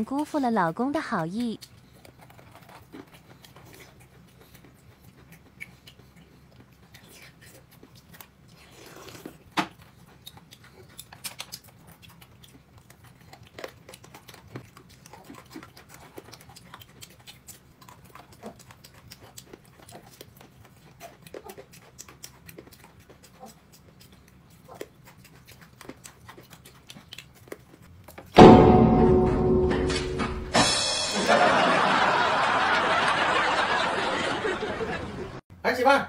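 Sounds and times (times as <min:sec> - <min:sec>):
person chewing: 0:01.4 - 0:28.4.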